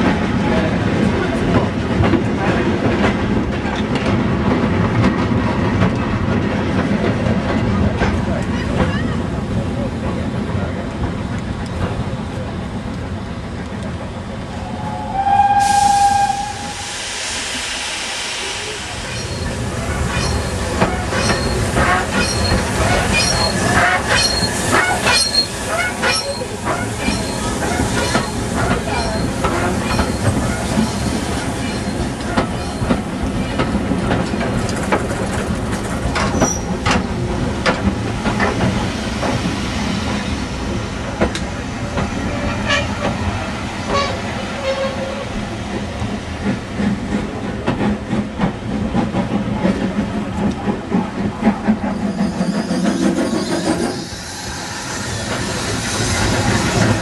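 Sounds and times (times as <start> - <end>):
steam hissing: 14.6 - 33.9, 49.5 - 57.0
train wheels clicking over rail joints: 19.1 - 57.0.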